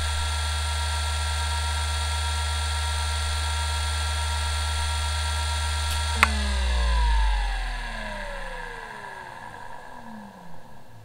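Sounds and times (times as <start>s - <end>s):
hard drive spinning: 5.7s - 11.0s.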